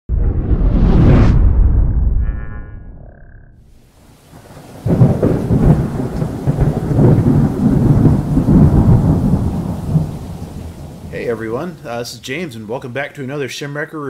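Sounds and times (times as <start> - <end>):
thunder rumbling: 3.7 - 12.5
rain: 3.8 - 12.6.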